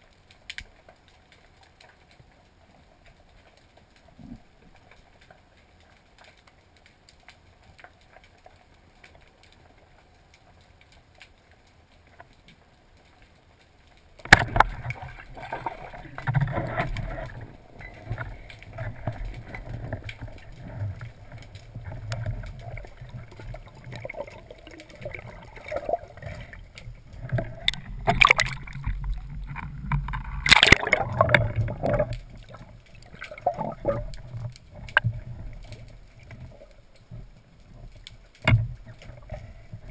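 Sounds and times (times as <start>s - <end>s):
underwater sloshing and bubbling: 0.0s - 39.9s.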